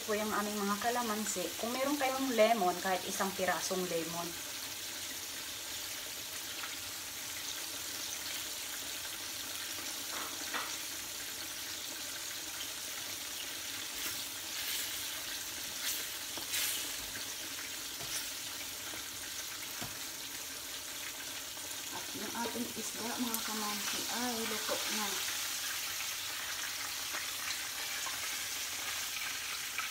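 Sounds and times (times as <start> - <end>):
oil sizzling in frying pans: 0.0 - 29.9.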